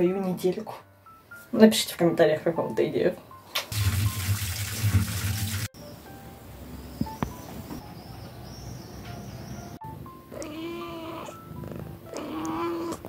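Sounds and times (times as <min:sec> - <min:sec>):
light background music: 0:00.0 - 0:13.0
cat meowing: 0:10.3 - 0:11.4, 0:12.1 - 0:13.0.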